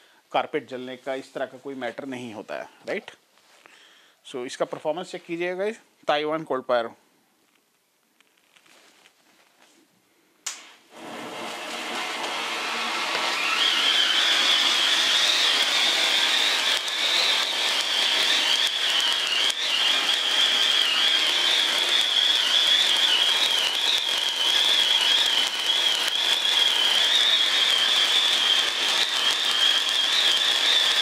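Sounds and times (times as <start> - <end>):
scattered crackles: 7.5 - 9.7, 15.5 - 31.0
spark fountain hissing: 10.9 - 31.0
high wavering whistle: 13.6 - 31.0.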